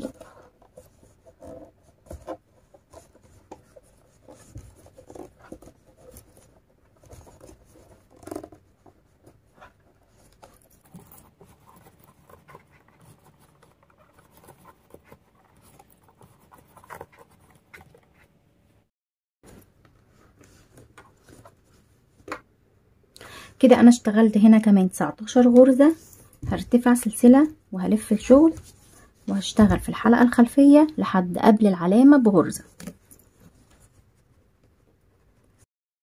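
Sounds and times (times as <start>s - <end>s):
crochet hook scratching cord: 0.0s - 18.4s.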